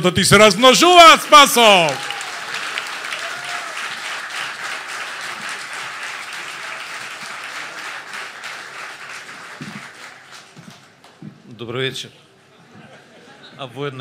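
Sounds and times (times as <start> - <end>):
audience applauding: 0.6 - 11.2.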